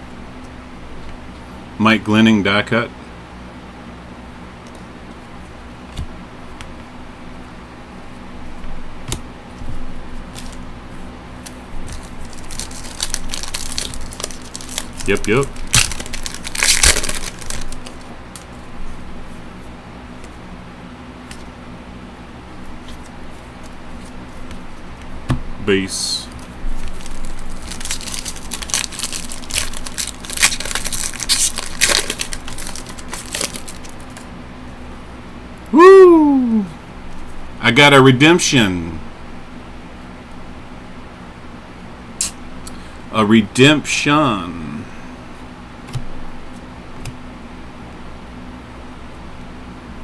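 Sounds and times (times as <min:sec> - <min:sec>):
steady low hum: 0:00.0 - 0:50.0
cards being handled: 0:08.6 - 0:10.7, 0:11.4 - 0:18.7, 0:26.2 - 0:34.3
wrapper crinkling: 0:11.4 - 0:18.6, 0:26.3 - 0:34.3.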